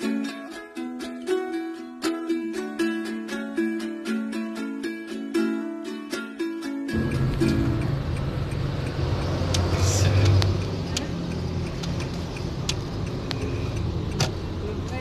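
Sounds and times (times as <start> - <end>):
car engine and tyre rumble: 6.9 - 15.0
sharp clicks: 7.0 - 14.4.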